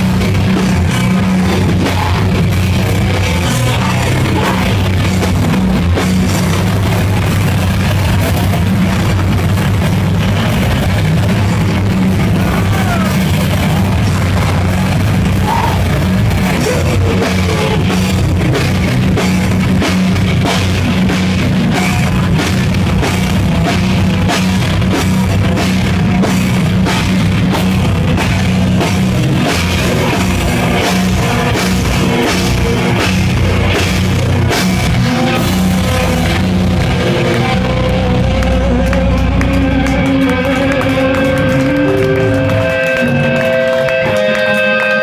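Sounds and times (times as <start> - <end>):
drum kit: 0.0 - 45.0
rock band playing loud: 0.0 - 45.0
guitars ringing held notes: 26.3 - 45.0.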